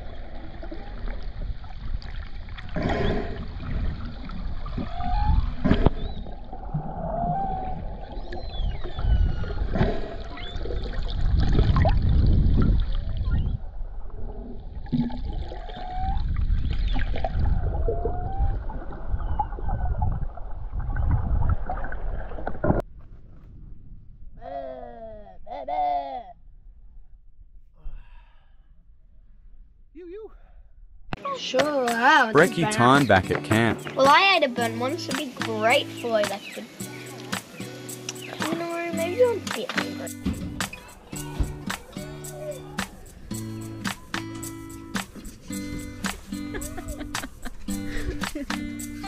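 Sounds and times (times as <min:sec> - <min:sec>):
underwater rumble of moving water: 0:00.0 - 0:24.3
whale and dolphin calls: 0:02.8 - 0:03.6, 0:04.7 - 0:10.9, 0:15.5 - 0:20.0
sharp underwater clicks: 0:35.1 - 0:38.8, 0:39.4 - 0:41.0, 0:42.8 - 0:46.3.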